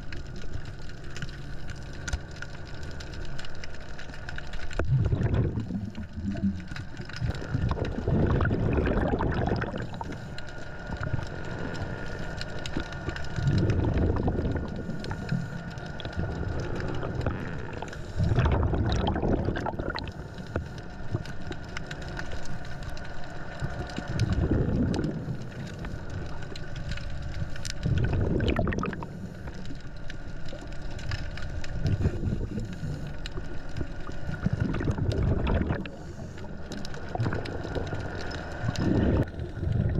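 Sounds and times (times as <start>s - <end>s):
regulator breathing bubbles: 4.8s - 10.3s, 13.4s - 21.2s, 24.0s - 26.3s, 27.8s - 29.7s, 31.8s - 39.9s.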